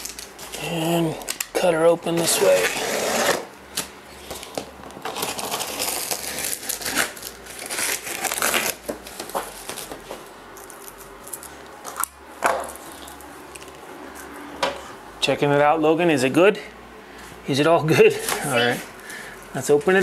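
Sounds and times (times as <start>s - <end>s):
cardboard and tape tearing: 2.1s - 13.7s
knife cutting cardboard box: 2.2s - 3.5s.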